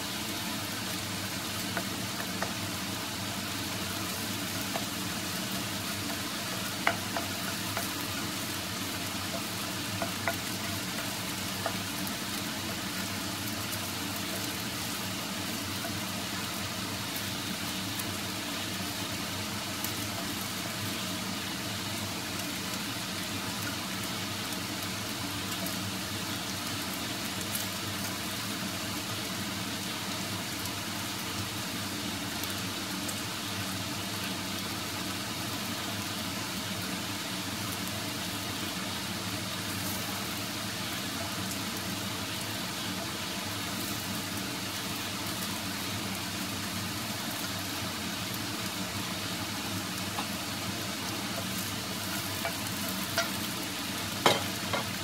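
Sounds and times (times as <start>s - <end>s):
eggs sizzling in oil: 0.0s - 55.0s
wooden spatula stirring in pan: 0.2s - 17.1s, 48.6s - 55.0s.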